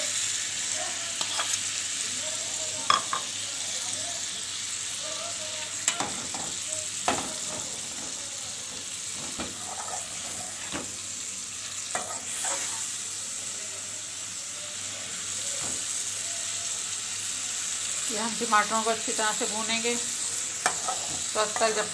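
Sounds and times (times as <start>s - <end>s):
tomatoes sizzling in hot oil: 0.0s - 21.9s
metal spatula scraping pan: 1.2s - 1.6s, 9.1s - 10.8s.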